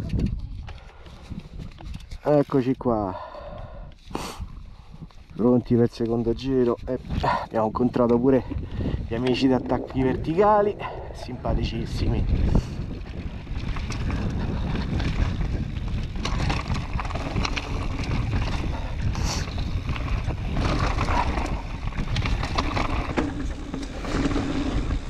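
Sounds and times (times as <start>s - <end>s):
wind buffeting microphone: 0.0s - 2.1s, 4.0s - 25.0s
bike knocks and rattles: 13.1s - 25.0s.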